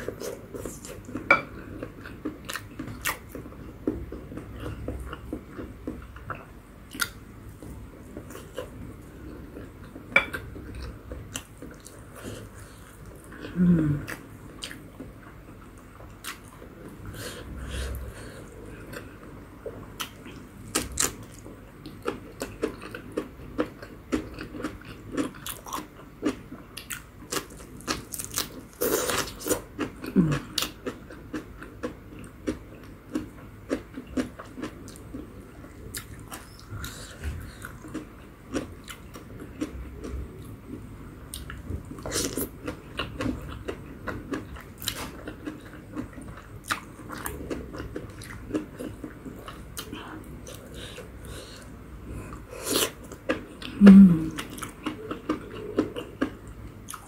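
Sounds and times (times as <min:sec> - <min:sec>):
crunchy chewing: 0:20.0 - 0:57.0.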